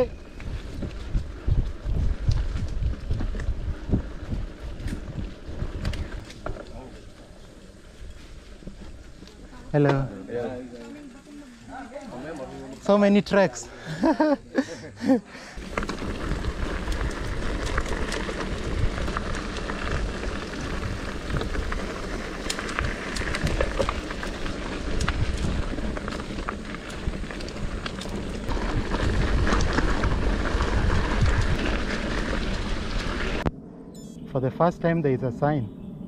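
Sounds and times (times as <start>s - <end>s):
bike tyres on muddy dirt trail: 0.0s - 33.5s
clicks crackles and rattles: 4.6s - 7.1s, 15.6s - 33.5s
steady low rumble: 13.8s - 36.0s.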